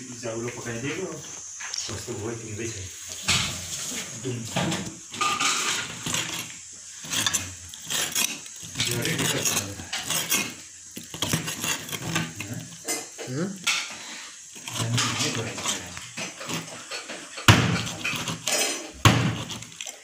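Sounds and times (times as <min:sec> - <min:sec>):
knife knocking on cutting board: 0:17.5 - 0:17.9.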